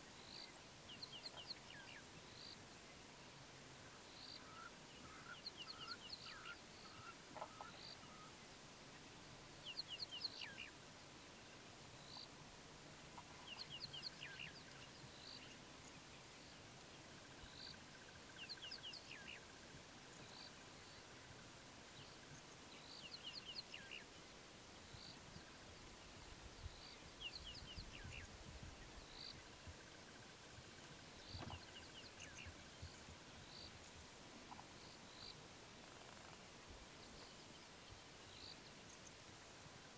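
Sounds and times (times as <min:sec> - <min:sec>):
faint insect-like buzz: 0:00.0 - 0:39.9.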